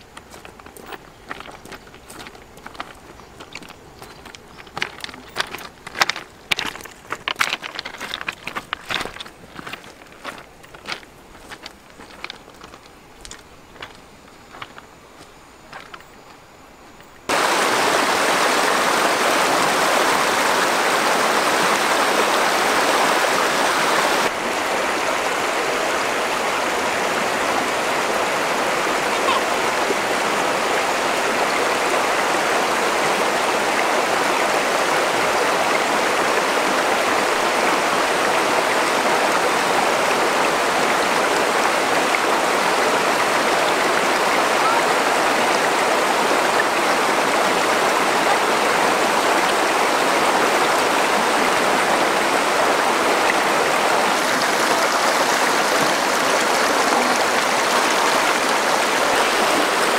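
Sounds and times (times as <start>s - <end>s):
river water rushing: 16.9s - 59.9s.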